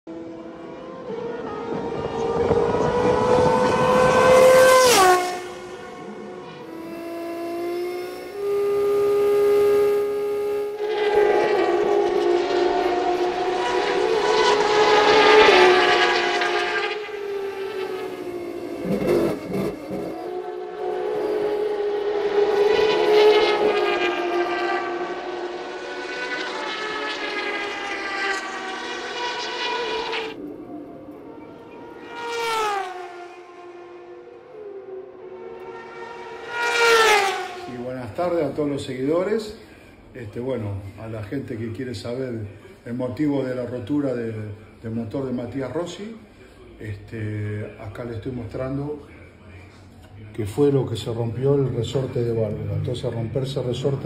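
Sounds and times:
car engine accelerating on board: 0:00.1 - 0:37.7
race car passing at speed: 0:00.1 - 0:39.7.

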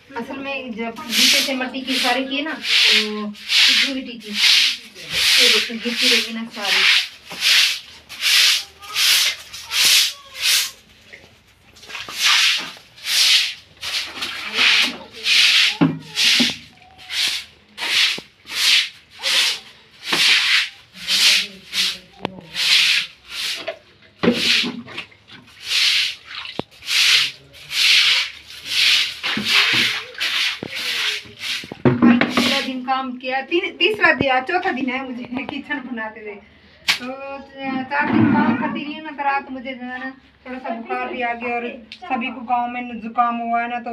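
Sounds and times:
broom sweeping concrete floor: 0:01.0 - 0:24.8, 0:25.5 - 0:32.8.

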